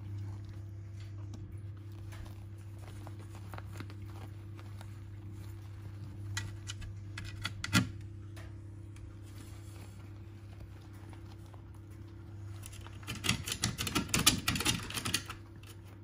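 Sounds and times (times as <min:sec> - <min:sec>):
puppies scrabbling in dog bed: 0:00.0 - 0:07.0
steady low hum: 0:00.0 - 0:16.0.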